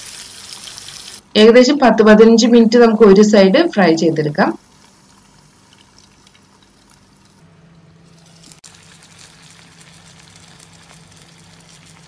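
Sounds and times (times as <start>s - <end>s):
fish sizzling in oil: 0.0s - 1.3s, 4.6s - 7.4s, 8.0s - 12.0s
oil crackling: 8.1s - 12.0s.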